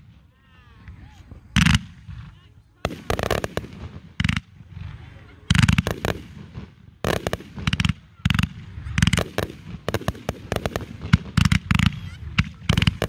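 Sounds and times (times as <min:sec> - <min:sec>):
fireworks bursting with sharp bangs: 0:00.0 - 0:13.0.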